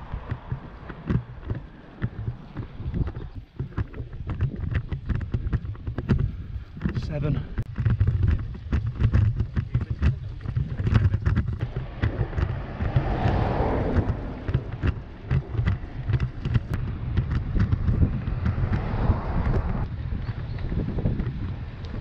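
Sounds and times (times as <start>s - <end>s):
low road rumble: 0.0s - 22.0s
sharp knocks from road vibration: 0.0s - 22.0s
wind buffeting microphone: 0.0s - 22.0s.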